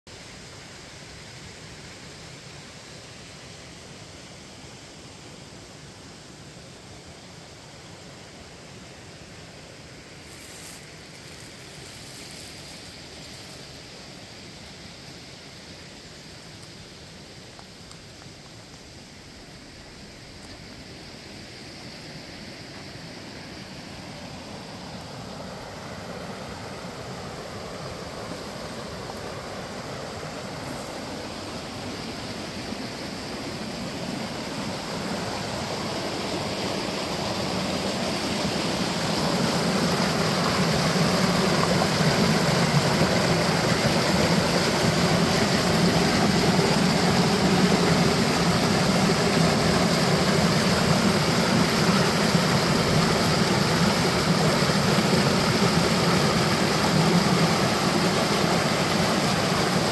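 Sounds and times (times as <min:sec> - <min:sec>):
creek splashing over boulders: 0:22.6 - 0:59.9.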